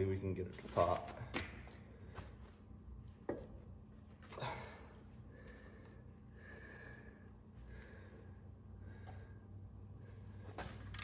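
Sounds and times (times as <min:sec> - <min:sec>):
man breathing hard: 0:04.3 - 0:10.4.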